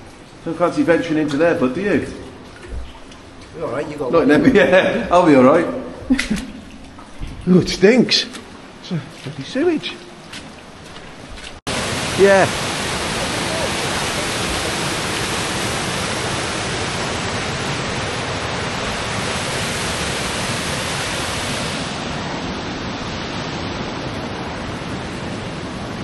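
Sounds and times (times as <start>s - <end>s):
waterfall rushing over rocks: 11.7s - 26.0s.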